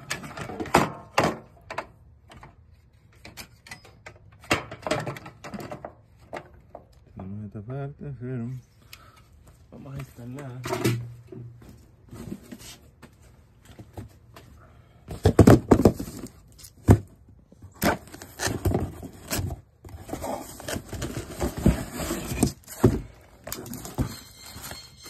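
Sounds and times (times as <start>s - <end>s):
cardboard box rustling and scraping: 11.7s - 13.3s, 17.8s - 25.0s.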